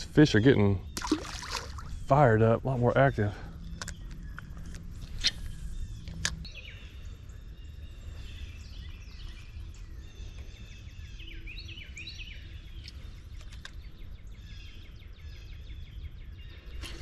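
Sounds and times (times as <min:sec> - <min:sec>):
low steady rumble: 0:00.0 - 0:17.0
songbirds chirping and trilling: 0:00.0 - 0:17.0.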